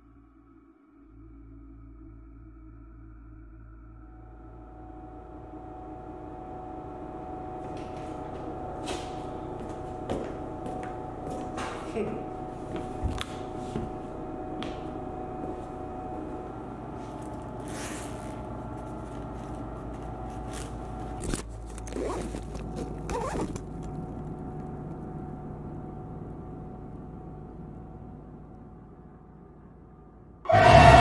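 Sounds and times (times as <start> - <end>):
steady hum: 0.0 - 31.0
bag handling: 17.1 - 24.2
backpack zipper rasps: 17.6 - 18.4, 21.2 - 23.6.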